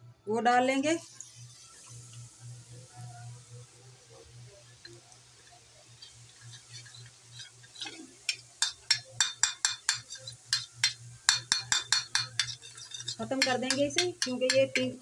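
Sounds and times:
faint frying oil: 0.3s - 15.0s
metal spoon tapping on ladle: 8.3s - 15.0s.

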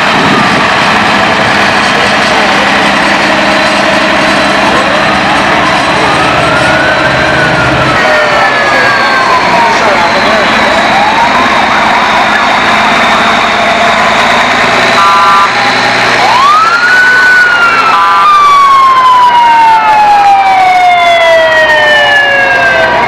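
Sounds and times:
siren rising and falling: 0.0s - 23.0s
multi-tone horn blasts: 14.9s - 15.7s.

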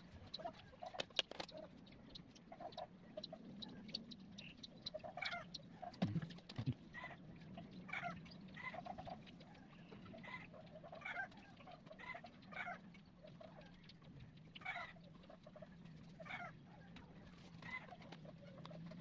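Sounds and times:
steady low hum: 3.0s - 17.4s.

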